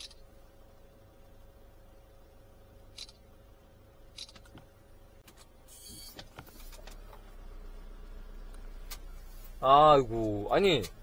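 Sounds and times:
camera shutter sound: 0:02.9 - 0:03.2, 0:04.1 - 0:04.5.

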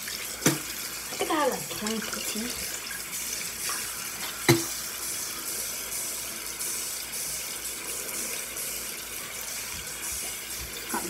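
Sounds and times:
sink tap running into basin: 0:00.0 - 0:11.0.

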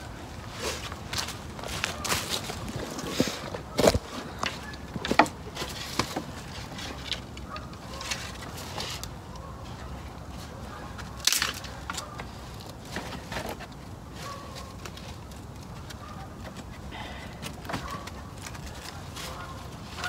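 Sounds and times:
footsteps crunching on dry leaves: 0:00.3 - 0:04.7
dead sticks knocking and crackling: 0:01.1 - 0:09.1, 0:10.9 - 0:13.8
stick cracking: 0:11.1 - 0:12.0.

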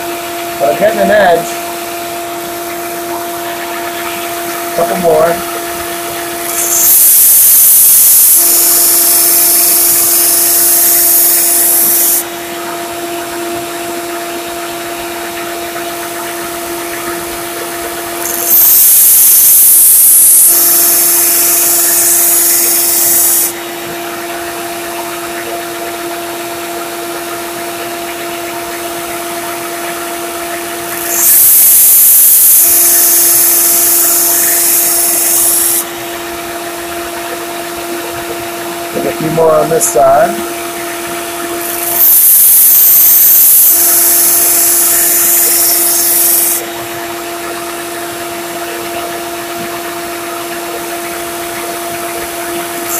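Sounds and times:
belt sander humming: 0:02.8 - 0:12.6, 0:16.9 - 0:24.0, 0:30.8 - 0:37.4, 0:41.6 - 0:46.9, 0:52.0 - 0:52.9
blade grinding on sander belt: 0:06.1 - 0:12.3, 0:18.2 - 0:23.6, 0:30.8 - 0:35.9, 0:41.6 - 0:46.8.

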